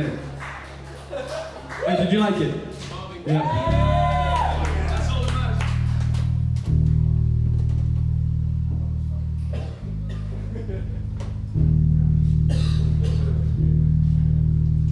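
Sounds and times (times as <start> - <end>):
guitar and bass chords: 3.5 - 14.9.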